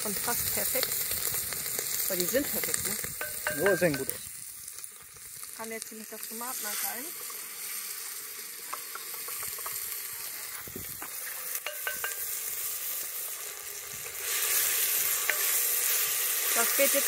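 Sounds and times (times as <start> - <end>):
meat and onions sizzling: 0.0 - 17.0
spoon scraping a pot: 11.2 - 12.2, 15.1 - 15.6.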